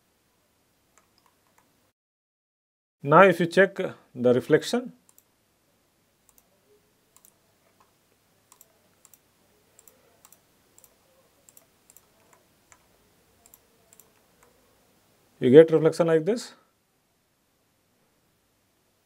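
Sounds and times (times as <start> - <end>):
computer mouse clicks: 1.0 - 1.7, 5.1 - 5.3, 6.3 - 6.5, 7.2 - 7.9, 8.5 - 9.2, 9.8 - 14.6.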